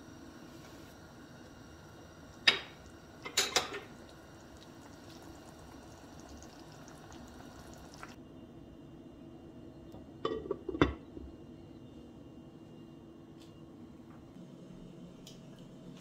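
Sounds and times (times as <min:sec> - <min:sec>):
soup simmering: 0:01.0 - 0:08.2.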